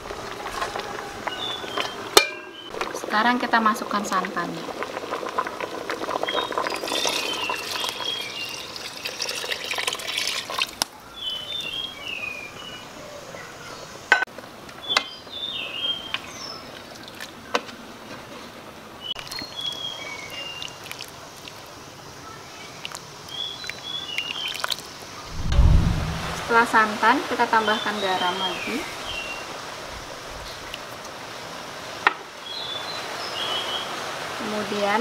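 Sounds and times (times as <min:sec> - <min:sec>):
liquid pouring into a pot: 0:04.2 - 0:10.9, 0:20.6 - 0:21.6
small birds chirping: 0:22.2 - 0:25.3.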